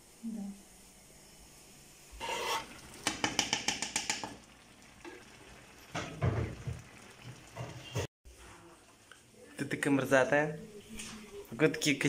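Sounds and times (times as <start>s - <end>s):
utensil scraping a frying pan: 2.2s - 4.3s.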